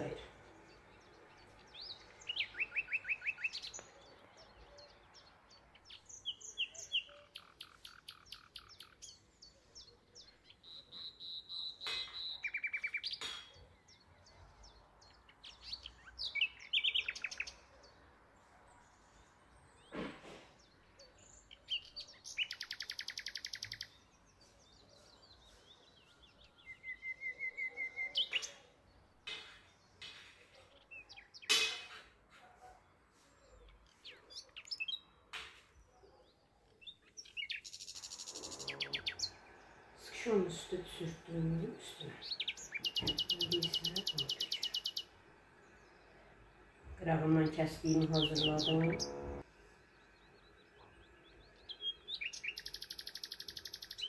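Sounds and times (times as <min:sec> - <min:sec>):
songbird trilling: 0:00.0 - 0:14.3, 0:15.0 - 0:17.7, 0:21.2 - 0:24.2, 0:25.9 - 0:28.8, 0:36.8 - 0:39.6, 0:40.7 - 0:45.1, 0:47.4 - 0:49.4, 0:50.9 - 0:54.0.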